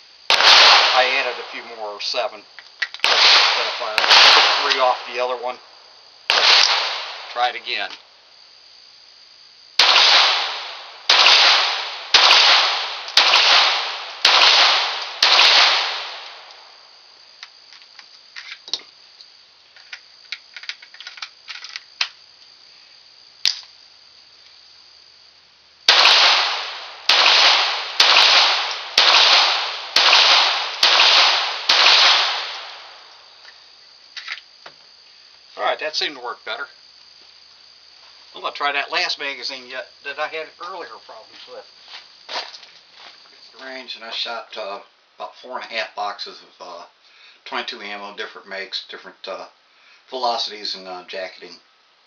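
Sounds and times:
pistol shots: 0:00.3 - 0:01.8, 0:03.0 - 0:05.4, 0:06.3 - 0:07.4, 0:09.8 - 0:16.6, 0:25.9 - 0:33.1
pistol handling clicks: 0:23.4 - 0:23.7.

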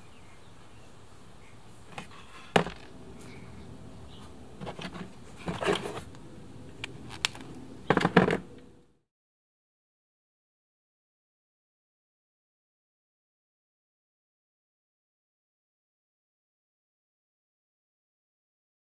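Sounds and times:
low room hum: 0:00.0 - 0:09.0.

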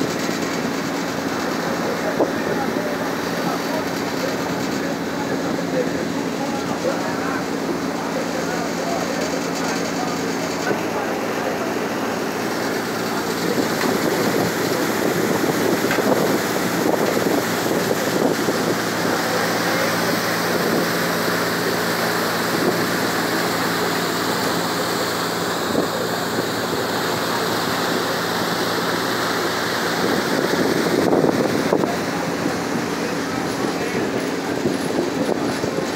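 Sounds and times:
ferry engine hum: 0:00.0 - 0:35.9
water rushing along hull: 0:00.0 - 0:35.9
wind buffeting microphone: 0:12.2 - 0:21.0, 0:29.9 - 0:35.9.

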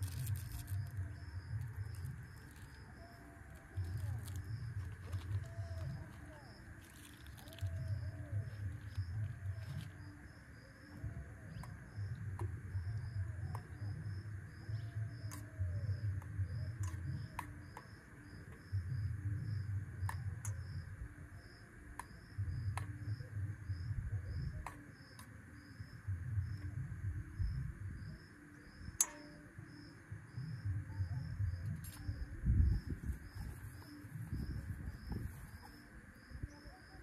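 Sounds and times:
insect chirping: 0:00.0 - 0:37.0
wind buffeting microphone: 0:30.3 - 0:36.7.

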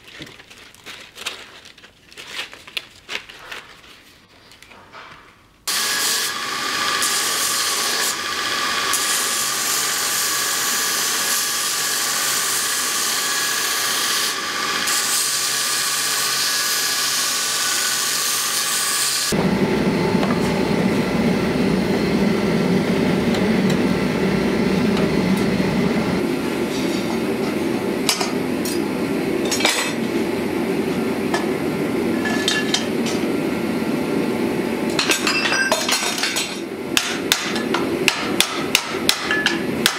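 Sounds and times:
belt grinder grinding steel: 0:05.7 - 0:19.4
low rushing noise: 0:19.4 - 0:29.4.

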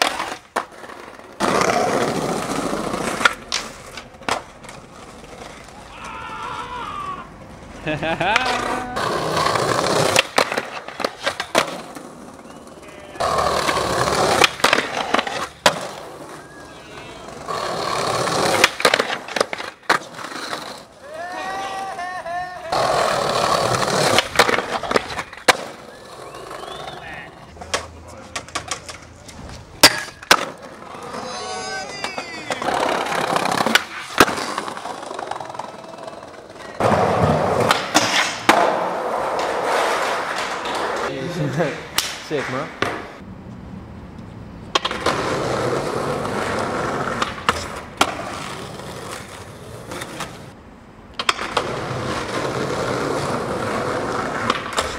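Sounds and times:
skateboard wheels rolling over paving: 0:00.0 - 0:41.6, 0:44.6 - 0:54.9
skateboard clacking on stone ledge: 0:08.2 - 0:16.0, 0:27.6 - 0:41.1, 0:51.1 - 0:54.9.

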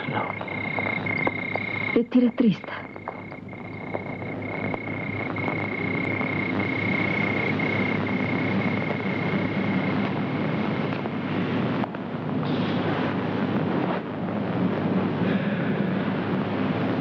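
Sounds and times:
high insect trill: 0:00.0 - 0:10.9
wind-like rushing wash: 0:02.8 - 0:17.0.

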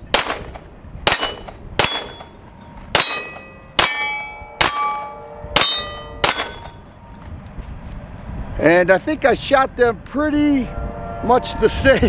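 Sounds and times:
pistol shots: 0:00.0 - 0:02.3, 0:05.6 - 0:06.8
steel target clanging: 0:01.1 - 0:07.0.

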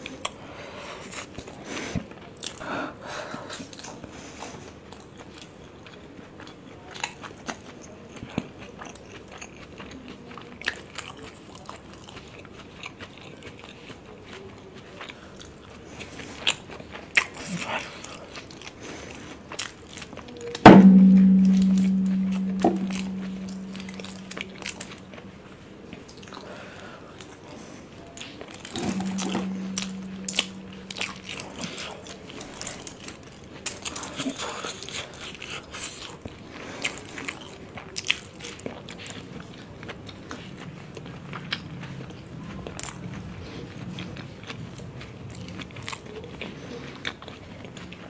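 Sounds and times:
loud low tone: 0:20.7 - 0:25.2, 0:28.8 - 0:31.2.

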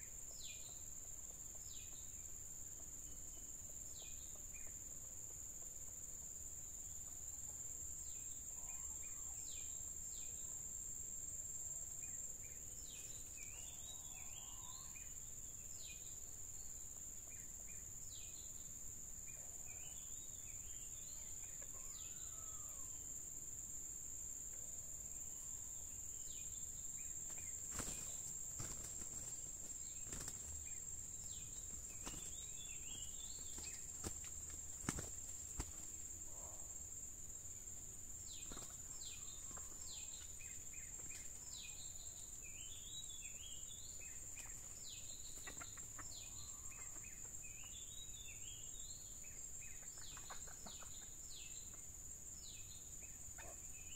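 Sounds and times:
high-pitched insect drone: 0:25.3 - 0:36.0
bird chirps: 0:25.4 - 0:36.6.

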